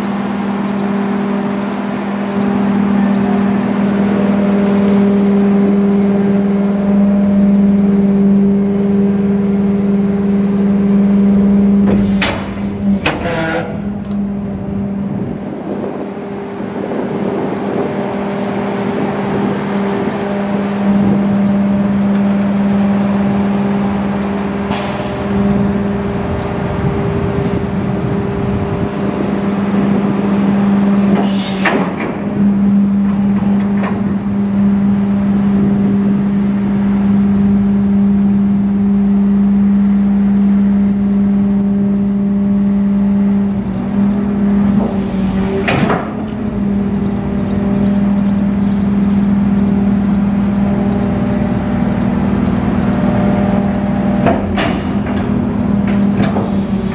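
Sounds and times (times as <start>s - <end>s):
diesel engine humming: 0.0s - 56.9s
hydraulic packer blade moving: 11.7s - 16.0s, 41.2s - 56.9s.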